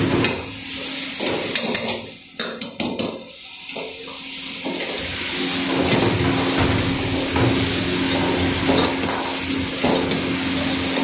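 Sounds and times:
ladle scraping wok: 0:04.7 - 0:11.0.

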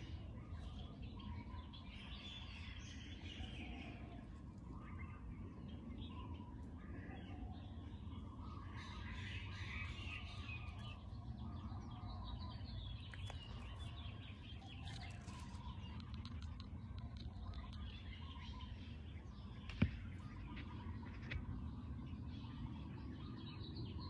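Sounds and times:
low background rumble: 0:00.0 - 0:24.0
small birds chirping and twittering: 0:00.0 - 0:24.0.

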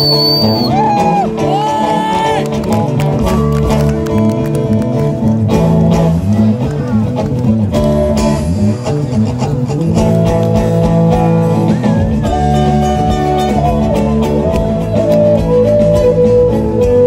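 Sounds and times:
bamboo flute melody: 0:00.0 - 0:02.6, 0:11.5 - 0:17.0
acoustic guitars plucking and strumming: 0:00.0 - 0:17.0.

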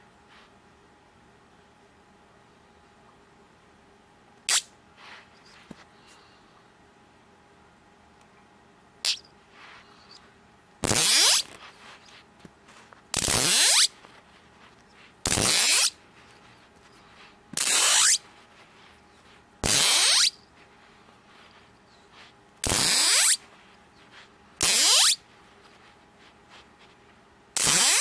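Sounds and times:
magnets snapping with buzzing rattle: 0:13.2 - 0:13.9, 0:15.3 - 0:16.0, 0:17.6 - 0:18.2, 0:24.6 - 0:25.2, 0:27.6 - 0:28.0.

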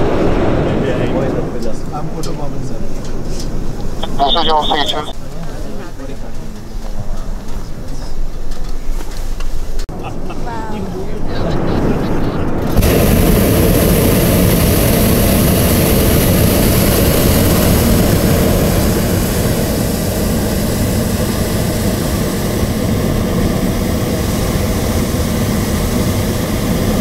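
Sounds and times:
propane burner firing: 0:00.0 - 0:05.1, 0:12.5 - 0:27.0.

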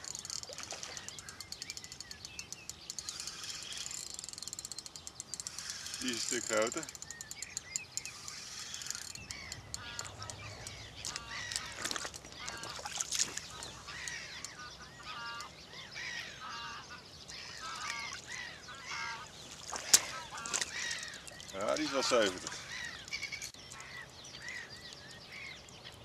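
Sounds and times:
geese honking: 0:09.4 - 0:12.9, 0:13.5 - 0:19.3, 0:20.0 - 0:23.4.

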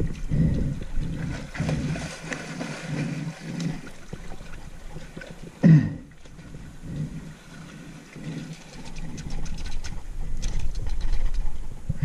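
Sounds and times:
river water sloshing: 0:00.0 - 0:11.5
small clicks: 0:08.7 - 0:11.5.

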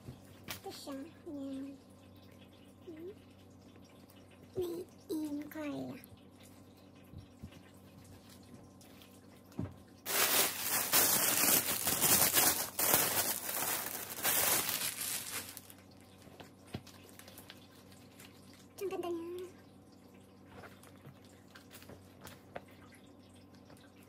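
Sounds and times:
plastic bag crinkling: 0:10.1 - 0:15.8.

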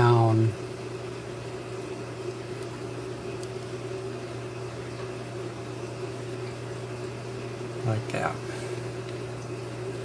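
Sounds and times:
machine hum: 0:00.0 - 0:10.0.

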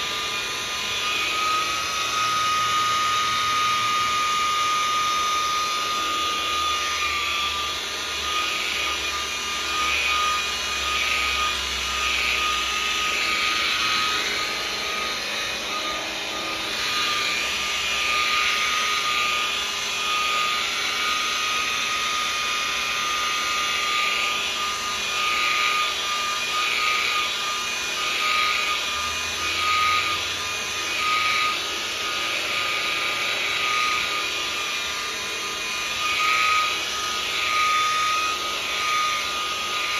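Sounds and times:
polishing pad swishing: 0:00.0 - 0:39.9
rotary polisher motor whine: 0:00.0 - 0:39.9.

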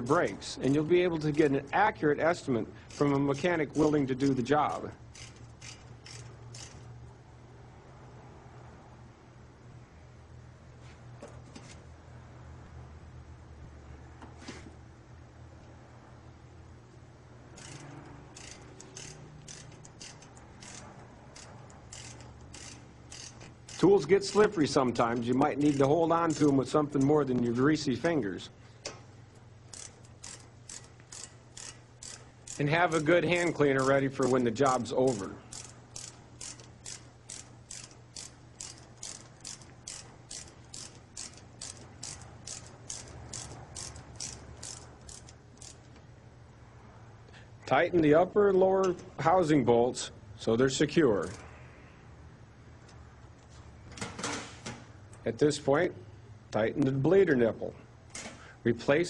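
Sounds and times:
ratchet wrench clicking: 0:02.8 - 0:07.0, 0:17.5 - 0:27.2, 0:29.6 - 0:46.0, 0:51.2 - 0:51.5.

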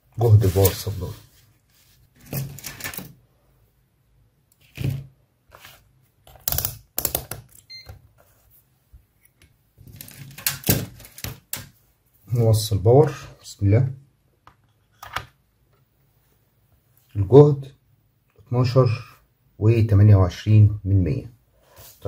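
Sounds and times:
clicks and clatters of wires: 0:02.2 - 0:03.2, 0:09.3 - 0:11.8.

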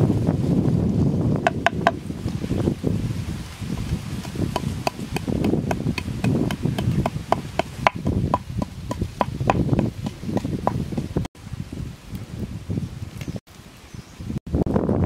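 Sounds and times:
blade chopping wood: 0:01.5 - 0:02.0, 0:03.8 - 0:11.1.

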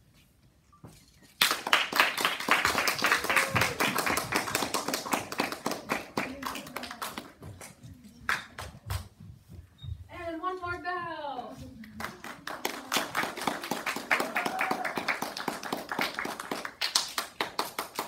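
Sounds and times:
audience applauding: 0:01.4 - 0:07.4, 0:12.0 - 0:18.0.

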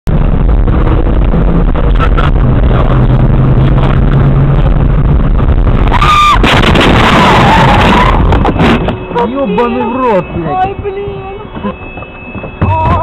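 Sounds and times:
car road and engine noise: 0:00.0 - 0:13.0
loud harsh rushing noise: 0:00.1 - 0:10.5.

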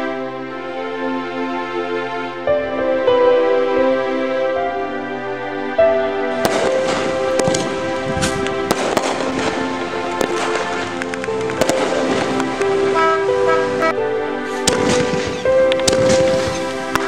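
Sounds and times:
background music: 0:00.0 - 0:17.0
fireworks crackling and popping: 0:06.4 - 0:17.0.

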